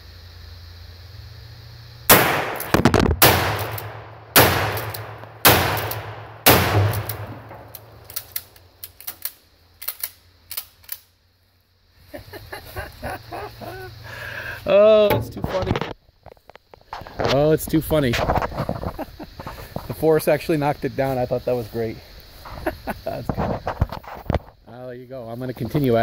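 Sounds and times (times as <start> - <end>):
shotgun shots with echo: 2.1 - 8.0.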